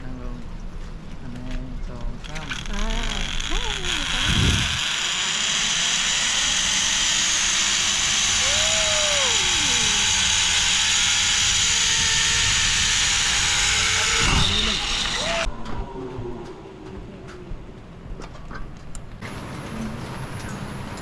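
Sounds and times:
zipline pulley whirring on cable: 0:02.2 - 0:15.5
rising and falling tone: 0:07.3 - 0:18.1.

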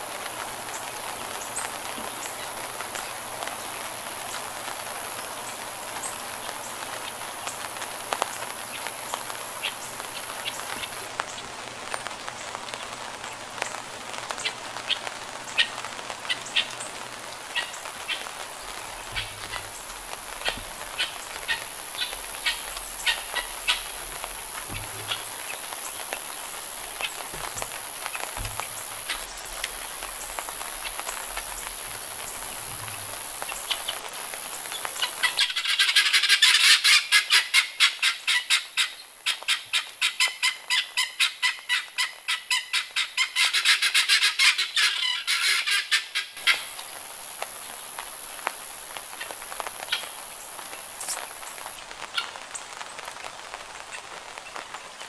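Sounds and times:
rain hissing: 0:00.0 - 0:55.0
guinea fowl calling: 0:14.4 - 0:16.9, 0:17.5 - 0:34.0, 0:34.7 - 0:46.9, 0:49.1 - 0:50.2.

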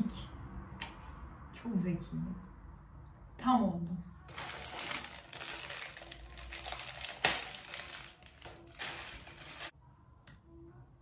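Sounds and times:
biscuit cracking: 0:04.3 - 0:09.7
biscuit packaging crinkling: 0:04.3 - 0:09.7.

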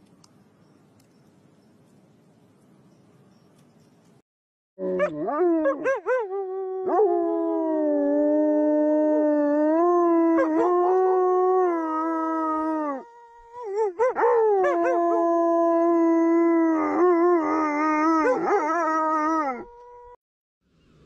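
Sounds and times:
dogs howling: 0:04.8 - 0:20.2.

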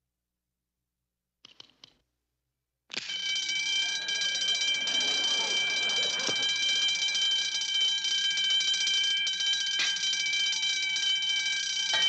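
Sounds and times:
electric alarm bell ringing: 0:03.0 - 0:12.0.

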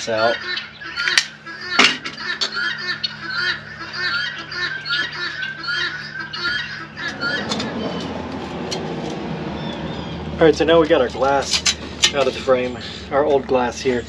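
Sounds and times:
poultry squawking: 0:00.0 - 0:10.4
rushing noise: 0:06.9 - 0:10.4.

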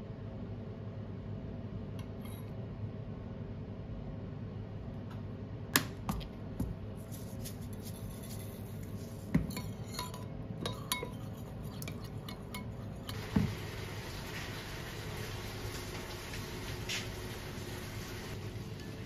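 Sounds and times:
low steady hum: 0:00.0 - 0:19.0
dishes and cutlery clinking: 0:09.4 - 0:13.2.

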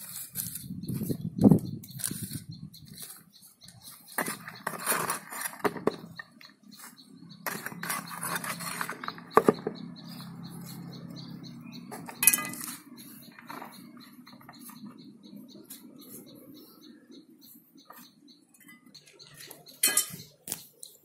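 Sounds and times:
faint high chirp: 0:00.0 - 0:21.0
trowel knocking and scraping bucket: 0:04.1 - 0:06.1, 0:07.4 - 0:09.8.

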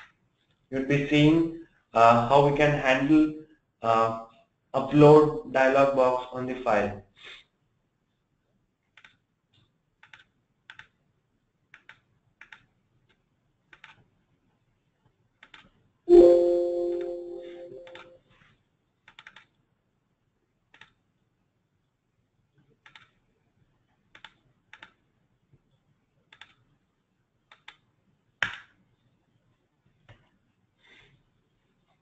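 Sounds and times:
mouse and keyboard clicks: 0:08.9 - 0:11.0, 0:11.7 - 0:14.1, 0:15.4 - 0:15.8, 0:19.0 - 0:19.6, 0:20.7 - 0:21.0, 0:22.8 - 0:23.2, 0:24.1 - 0:25.0, 0:26.3 - 0:26.6, 0:27.5 - 0:27.8
computer alert chime: 0:16.1 - 0:18.1.

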